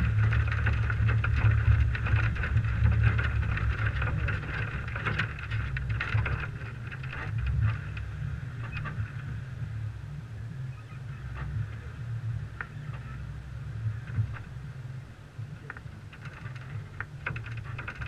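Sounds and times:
knocks and rattles: 0.0 - 9.1, 15.6 - 18.0
truck driving on dirt track: 0.0 - 18.0
wind noise: 0.0 - 18.0.

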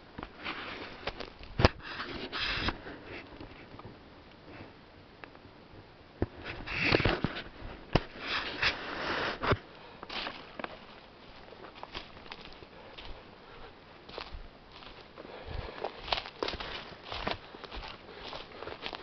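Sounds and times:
footsteps crunching through leaves: 10.1 - 19.0.

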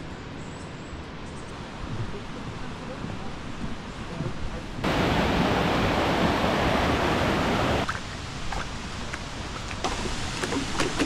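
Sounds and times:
flowing water: 1.6 - 11.0
stream rushing over rocks: 4.8 - 11.0.

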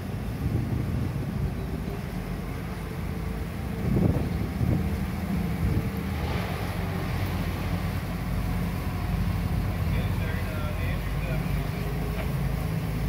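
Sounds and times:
boat engines rumbling: 0.0 - 13.0.

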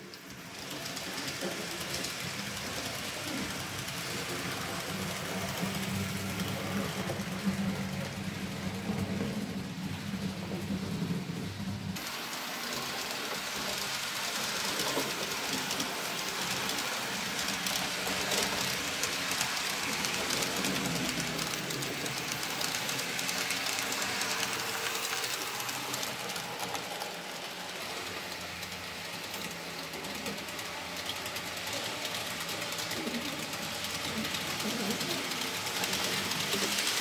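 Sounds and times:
model train wheels clattering: 0.0 - 37.0.

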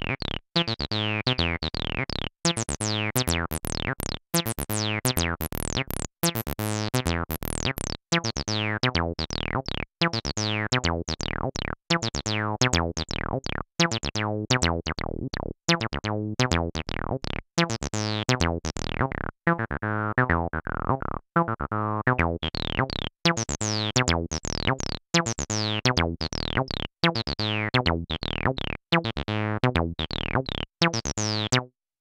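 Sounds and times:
synthesizer acid bassline: 1.4 - 8.3, 14.8 - 17.4, 18.0 - 19.3, 22.2 - 28.8, 29.6 - 31.6.

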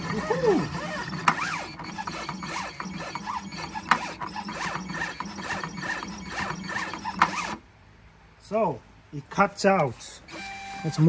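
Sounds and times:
vinyl cutter motors whining: 0.0 - 7.6, 10.3 - 11.0.

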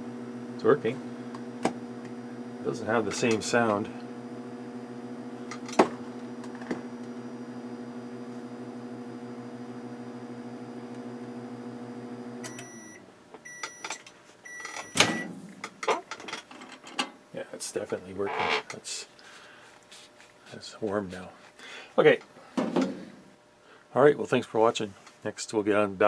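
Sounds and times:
microwave oven humming: 0.0 - 16.2
end-of-cycle beeps: 12.4 - 13.9.

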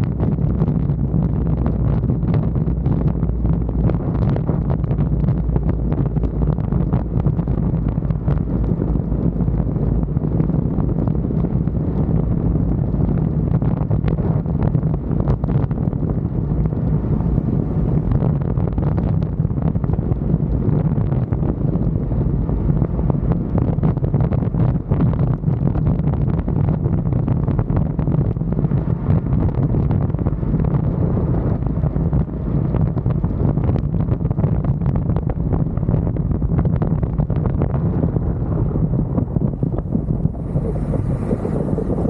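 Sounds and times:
wind buffeting microphone: 0.0 - 42.0
truck engine pulling uphill: 37.2 - 42.0.

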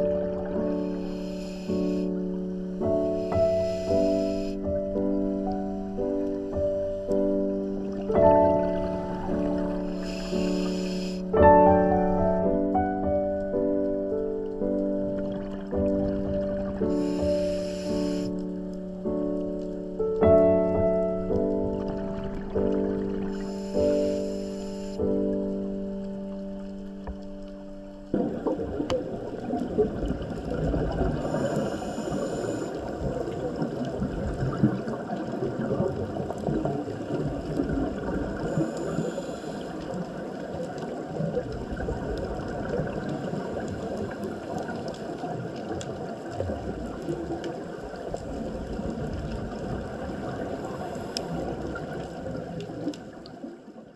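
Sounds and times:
muffled underwater churning: 0.0 - 53.9
short hisses: 10.0 - 11.3.

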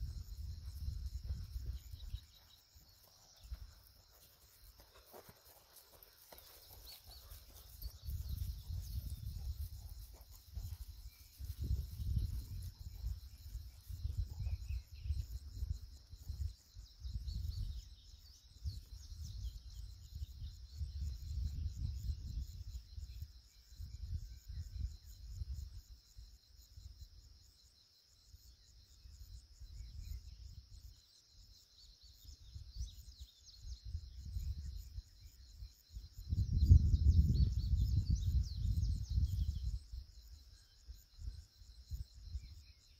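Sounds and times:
wind buffeting microphone: 0.0 - 2.4, 7.1 - 25.8, 32.4 - 42.7
insects chirring: 0.0 - 42.9.

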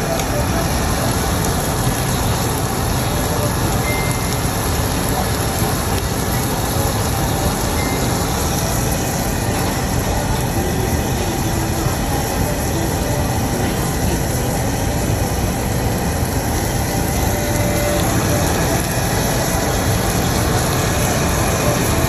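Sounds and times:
meat sizzling on a grill plate: 0.0 - 22.0.

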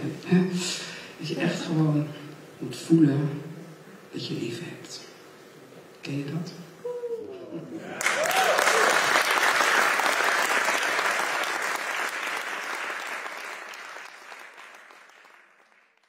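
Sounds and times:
audience applauding: 7.8 - 16.0.

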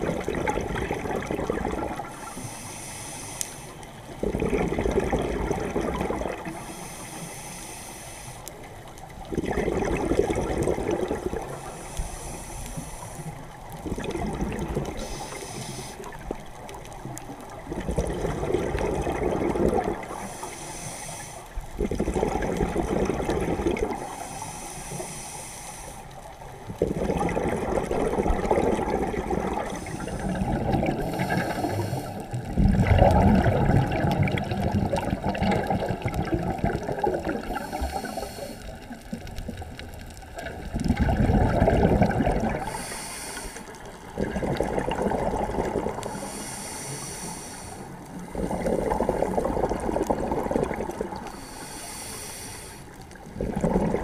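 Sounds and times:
bubbling exhaled air: 0.0 - 3.1, 4.0 - 7.0, 9.1 - 25.3, 26.6 - 54.0
regulator inhalation hiss: 2.1 - 3.8, 6.6 - 8.6, 11.6 - 13.5, 15.0 - 16.2, 20.1 - 21.6, 24.0 - 26.2, 29.7 - 32.3, 37.4 - 39.0, 42.6 - 43.8, 46.0 - 48.7, 51.3 - 53.0.

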